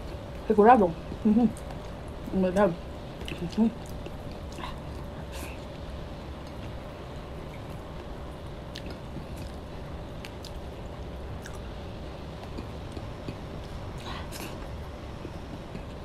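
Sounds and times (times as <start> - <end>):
steady low hum: 0.0 - 16.0
chewing with wet mouth smacks: 3.2 - 5.7, 7.4 - 11.7, 12.3 - 16.0.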